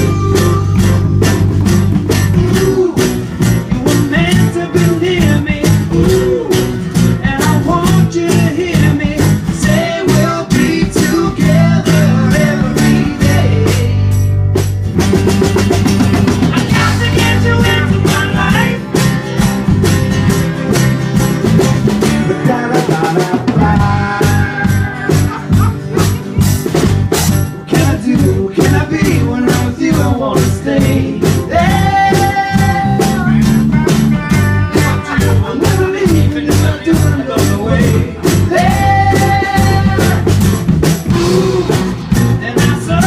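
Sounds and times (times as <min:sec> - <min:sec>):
drum kit beat: 0:00.0 - 0:43.0
electric bass: 0:00.0 - 0:43.0
strummed acoustic guitars: 0:00.0 - 0:43.0
voices singing together: 0:02.3 - 0:14.1, 0:16.6 - 0:18.9, 0:22.2 - 0:26.2, 0:27.7 - 0:33.6, 0:34.6 - 0:43.0.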